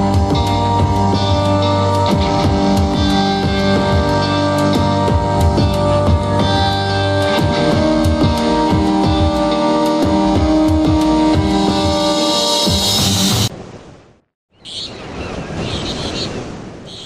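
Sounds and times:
guitar and drum music: 0.0s - 13.5s.

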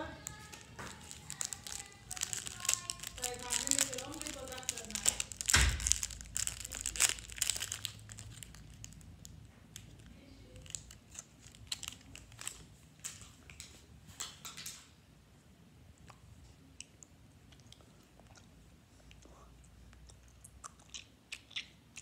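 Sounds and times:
wrapper crinkling and tearing: 0.1s - 14.8s.

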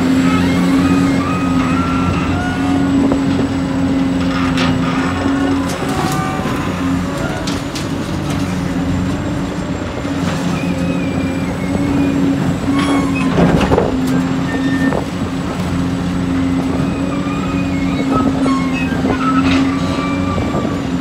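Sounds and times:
diesel engine running: 0.0s - 21.0s
metallic squeaks and clicks: 10.5s - 15.1s, 16.8s - 20.6s.

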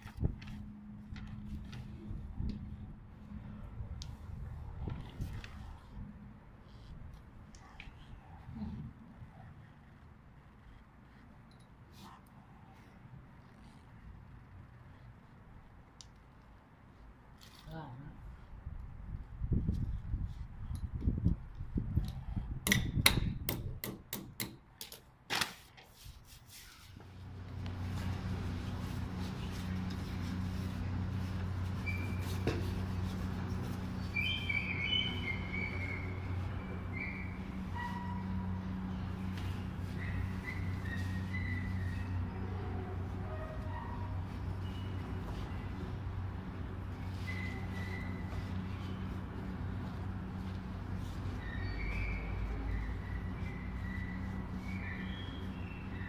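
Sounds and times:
steady low hum: 26.8s - 56.0s.

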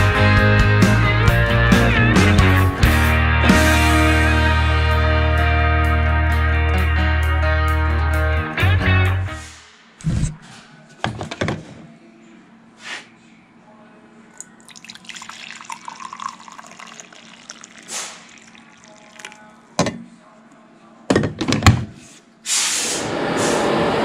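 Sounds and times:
coffee pouring into a mug: 14.4s - 19.7s.

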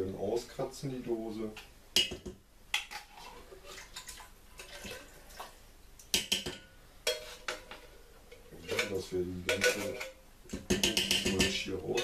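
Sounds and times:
spoon scraping inside a tin: 7.1s - 10.2s.

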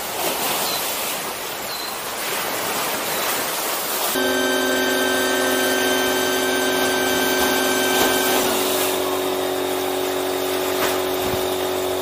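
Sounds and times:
electric air pump running: 4.2s - 12.0s.

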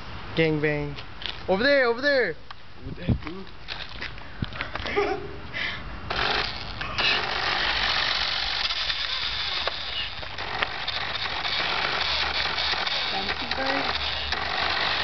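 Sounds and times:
toy car electric motor whirring: 6.1s - 15.0s
tyres rattling over asphalt: 6.1s - 15.0s.

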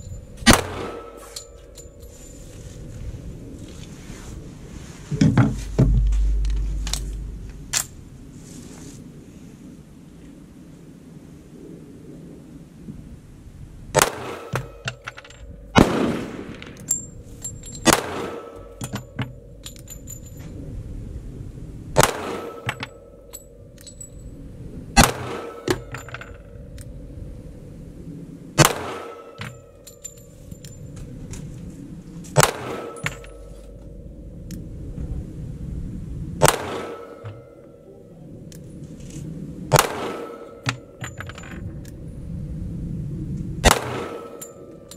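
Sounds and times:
pistol shots: 0.5s - 1.2s, 15.8s - 16.6s, 17.9s - 18.6s, 28.6s - 29.2s, 32.4s - 33.0s, 36.4s - 37.2s, 39.7s - 40.6s, 43.6s - 44.4s.

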